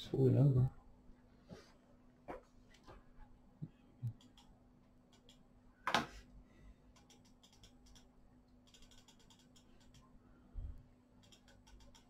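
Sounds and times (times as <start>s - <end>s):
steady low hum: 0.0s - 12.0s
faint clicks and tapping: 3.6s - 5.5s, 6.9s - 10.1s, 11.2s - 12.0s.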